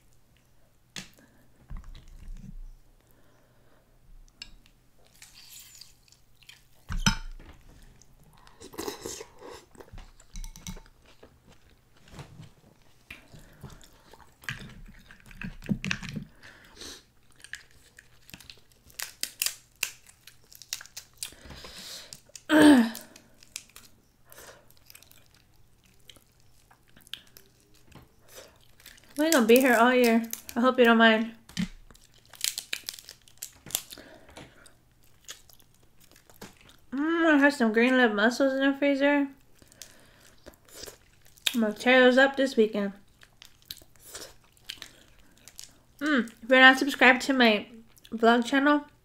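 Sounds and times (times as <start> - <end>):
wet chewing: 4.3 - 7.0, 12.8 - 30.6, 31.4 - 36.9, 39.4 - 41.6, 43.0 - 46.5
crab shells cracking: 13.1 - 30.6, 31.4 - 36.9, 39.4 - 41.6, 43.0 - 46.0.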